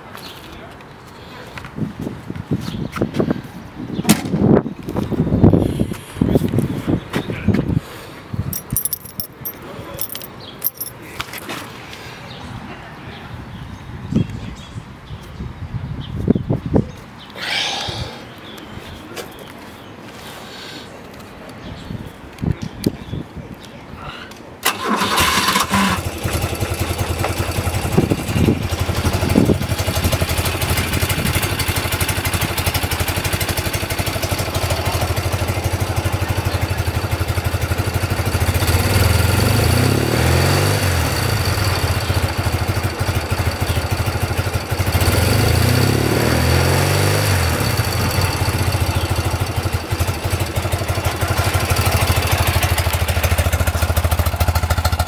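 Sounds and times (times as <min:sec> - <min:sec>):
motorcycle engine starting and idling: 0:24.6 - 0:55.0
engine revving: 0:38.5 - 0:42.0, 0:44.8 - 0:48.7.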